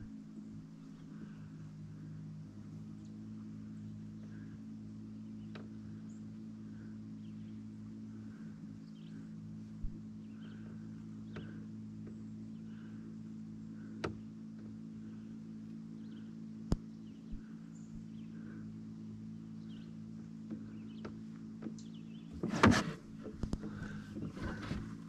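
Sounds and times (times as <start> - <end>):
low electric hum: 0.0 - 25.0
faint chirps: 2.9 - 22.3.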